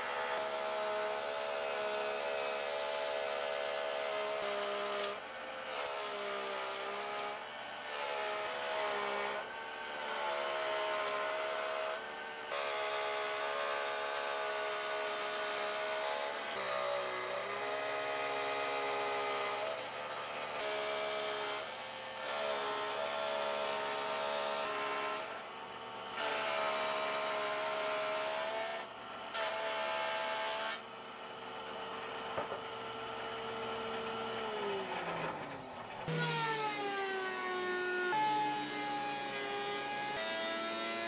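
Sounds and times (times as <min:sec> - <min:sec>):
jointer motor whine: 0:00.0 - 0:41.0
motor spinning down: 0:34.0 - 0:41.0.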